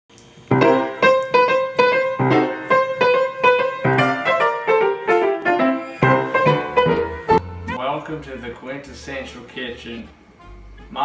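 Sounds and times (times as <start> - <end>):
grand piano chords: 0.5 - 7.9.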